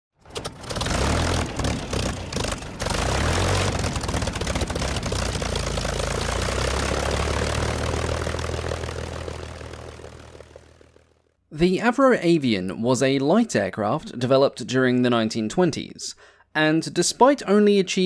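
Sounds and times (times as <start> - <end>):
propeller aircraft engine running: 0.2 - 11.4.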